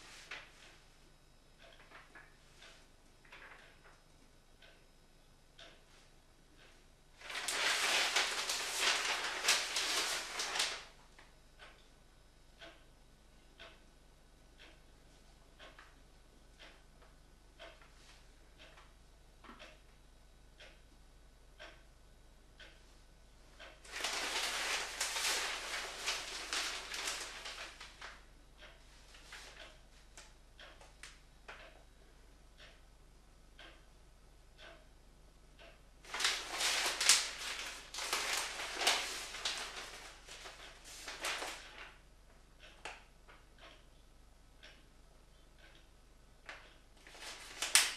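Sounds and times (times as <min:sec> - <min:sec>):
newspaper pages rustling: 0:07.2 - 0:10.9, 0:23.9 - 0:28.1, 0:36.1 - 0:41.9, 0:47.1 - 0:47.9.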